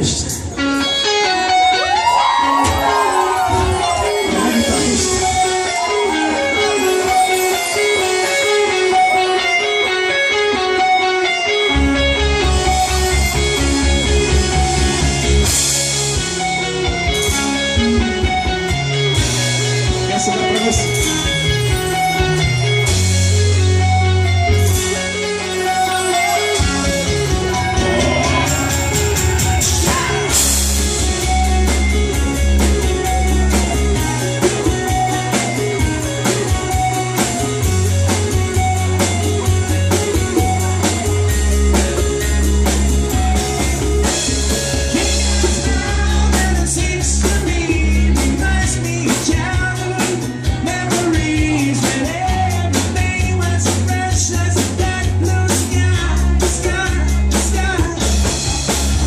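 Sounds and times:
live band dance music: 0:00.0 - 0:59.0
person singing: 0:19.9 - 0:22.5, 0:25.4 - 0:31.4, 0:44.8 - 0:58.8.

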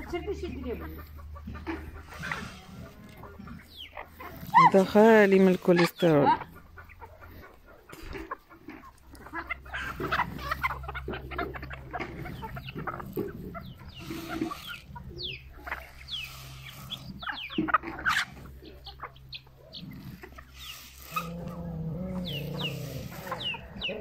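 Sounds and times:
hens clucking: 0:00.0 - 0:24.0.

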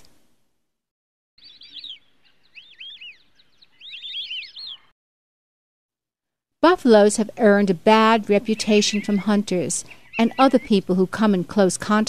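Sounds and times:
bird chirping: 0:01.4 - 0:05.0, 0:08.0 - 0:11.0.

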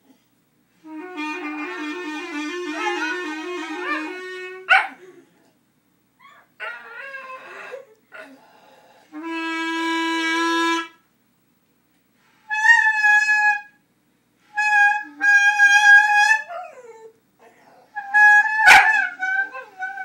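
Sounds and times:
clarinet held notes: 0:00.8 - 0:04.7, 0:09.1 - 0:11.0, 0:14.4 - 0:17.0, 0:18.0 - 0:20.0
dog howling: 0:15.6 - 0:20.0.

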